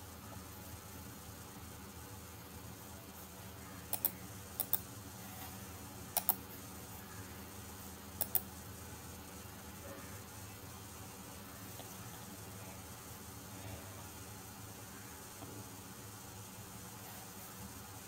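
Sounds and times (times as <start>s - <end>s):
faint steady hiss: 0.0s - 18.0s
computer mouse button clicking: 3.9s - 4.8s, 6.2s - 6.4s, 8.2s - 8.5s.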